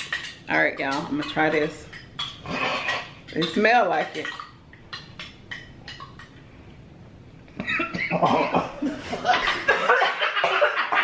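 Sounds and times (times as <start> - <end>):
person coughing loudly: 7.8 - 8.8, 9.7 - 11.0.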